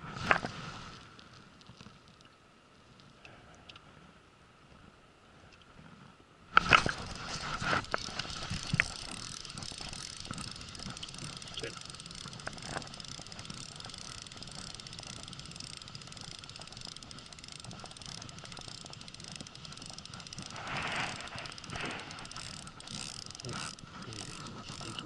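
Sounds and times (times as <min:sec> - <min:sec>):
fishing reel ticking whir: 0:06.6 - 0:25.0
rush of noise: 0:20.5 - 0:22.4.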